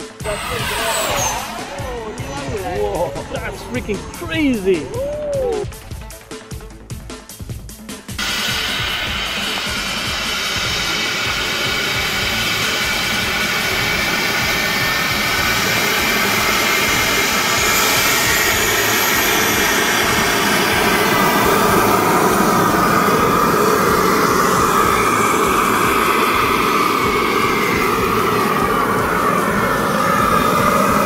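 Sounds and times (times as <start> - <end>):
faint whine sliding down in pitch: 0.0 - 5.8
jet turbine rush and whine: 0.0 - 7.1, 7.7 - 31.0.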